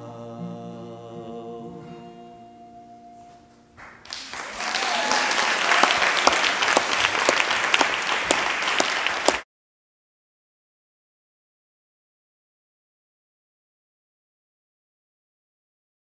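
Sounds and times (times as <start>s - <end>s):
audience applauding: 3.8s - 9.4s.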